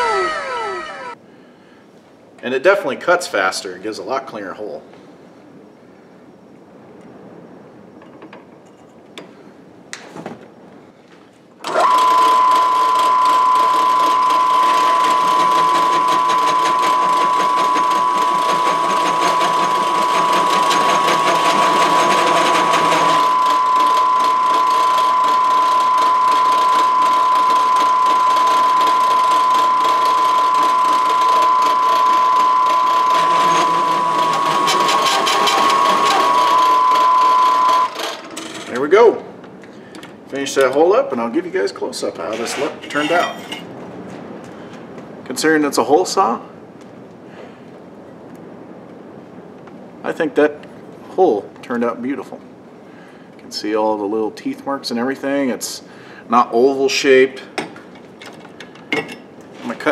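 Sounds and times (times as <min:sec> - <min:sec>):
drill press cutting steel: 0:11.6 - 0:38.8, 0:42.4 - 0:43.6.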